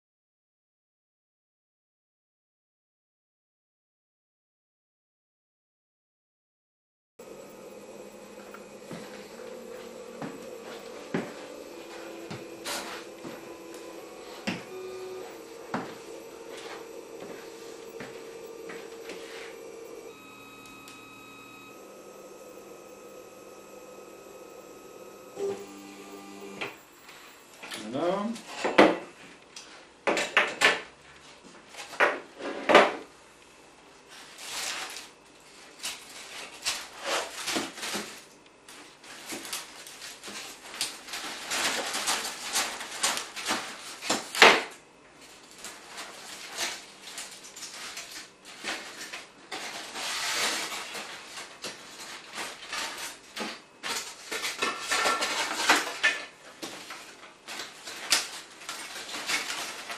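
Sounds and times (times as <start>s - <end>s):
foam block scraping: 9.0s - 20.1s.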